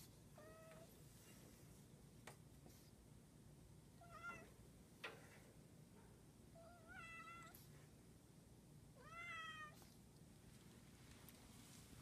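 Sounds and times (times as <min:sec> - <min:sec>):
cat meowing: 0:06.6 - 0:07.6, 0:09.0 - 0:09.8.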